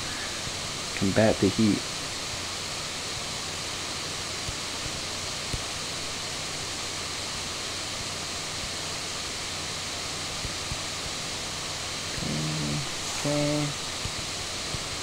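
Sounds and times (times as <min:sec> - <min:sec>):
faint electrical hum: 0:00.0 - 0:15.0
microphone hiss: 0:00.0 - 0:15.0.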